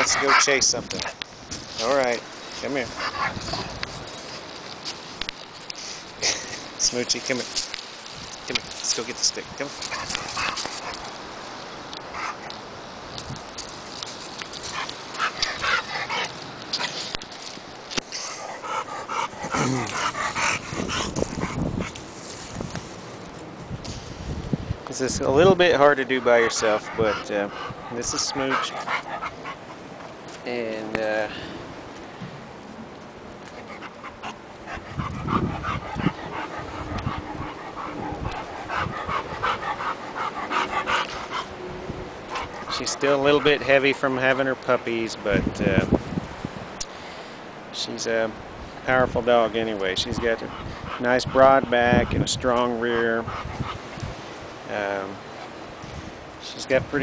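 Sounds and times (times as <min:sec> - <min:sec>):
dog panting: 0:00.0 - 0:01.2, 0:01.8 - 0:04.7, 0:08.8 - 0:11.1, 0:12.0 - 0:12.6, 0:14.4 - 0:17.3, 0:18.0 - 0:22.1, 0:25.1 - 0:30.2, 0:33.5 - 0:41.6, 0:42.2 - 0:44.4, 0:50.0 - 0:54.0.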